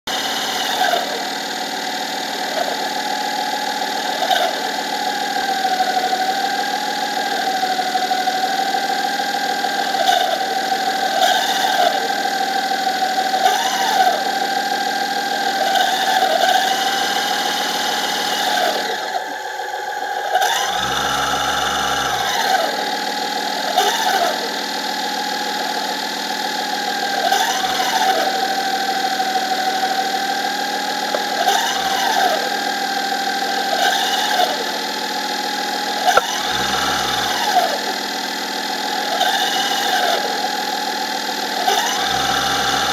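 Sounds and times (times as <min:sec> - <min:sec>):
electric thruster motor whine: 0:15.8 - 0:40.8, 0:41.5 - 0:42.9.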